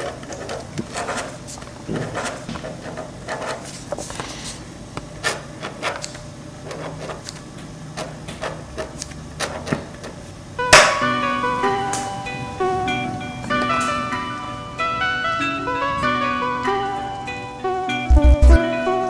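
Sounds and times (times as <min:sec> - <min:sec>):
ballpoint pen scratching on paper: 0:00.0 - 0:04.3, 0:05.2 - 0:07.4, 0:08.0 - 0:10.2
music hit with held notes: 0:18.0 - 0:19.0.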